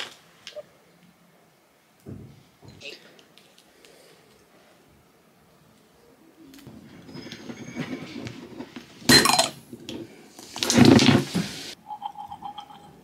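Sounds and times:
dishes and cutlery clinking: 0:09.1 - 0:09.6.

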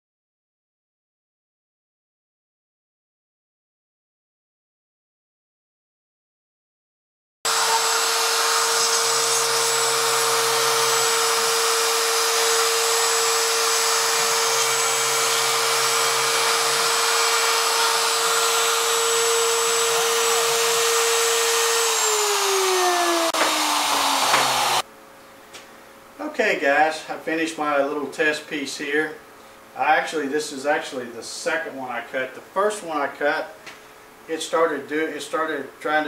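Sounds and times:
motor spinning down: 0:07.5 - 0:24.8
router whining cutting wood: 0:07.5 - 0:24.8.

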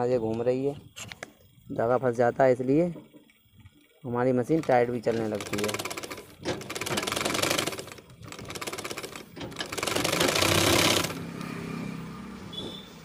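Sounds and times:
sewing machine running: 0:04.6 - 0:11.3.

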